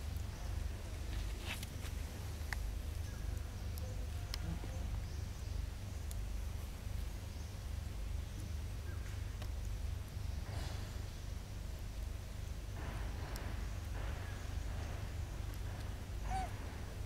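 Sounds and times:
faint high ticks: 3.3 - 4.5.

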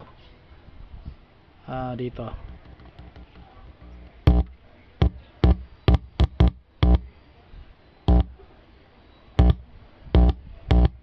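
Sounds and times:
speaker buzzing hum: 2.1 - 7.4, 8.0 - 8.5, 9.3 - 11.0.

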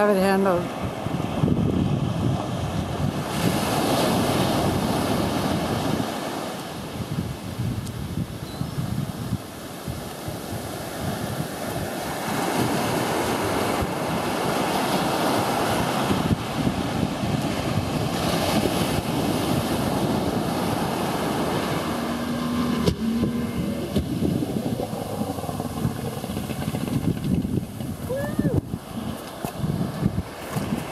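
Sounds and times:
surf washing on beach: 0.0 - 30.9
wind buffeting microphone: 0.0 - 30.9.

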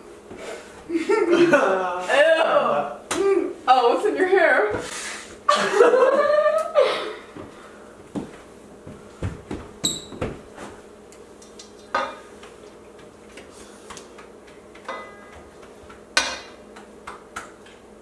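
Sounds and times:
utensils clinking on metal bowl: 14.9 - 15.4.

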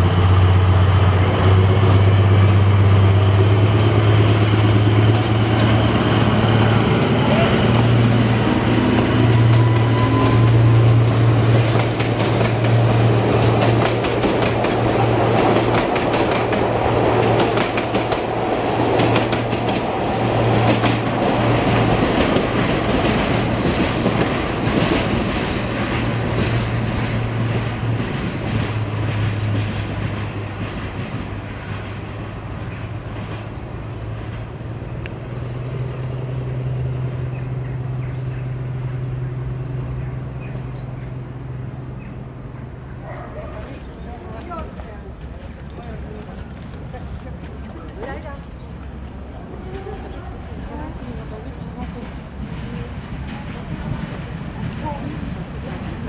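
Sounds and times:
diesel locomotive engine hum: 0.0 - 56.0
wheels clicking over rail joints: 4.4 - 10.7, 11.3 - 31.6.

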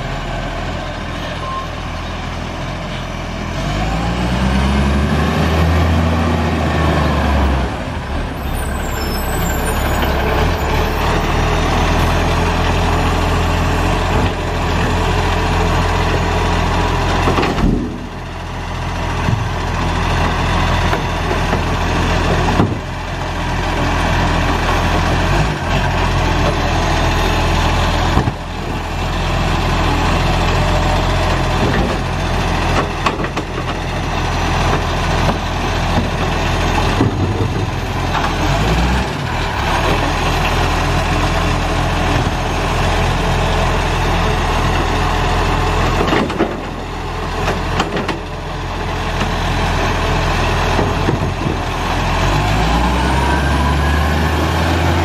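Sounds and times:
garbage truck diesel engine: 0.0 - 55.0
knocks and clatter of bins: 22.5 - 22.9, 36.9 - 37.7, 50.7 - 51.6.

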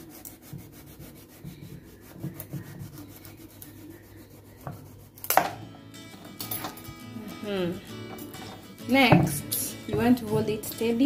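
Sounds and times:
knife sawing through squash: 0.0 - 5.2.

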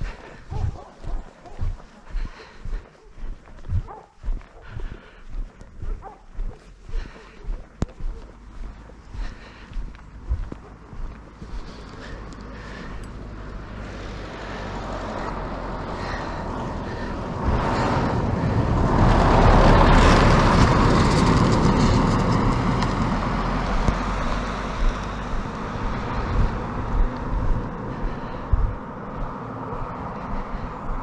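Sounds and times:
pickup truck driving past: 14.1 - 27.9.

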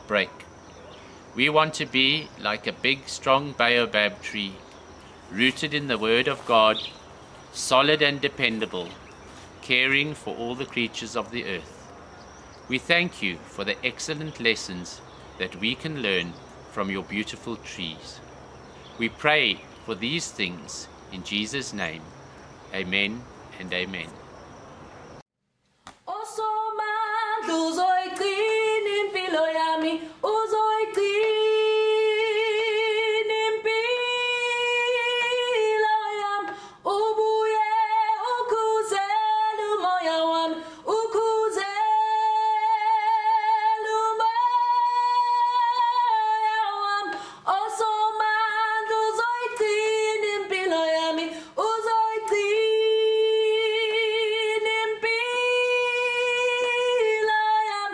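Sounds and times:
woman singing a cappella: 26.0 - 57.9.

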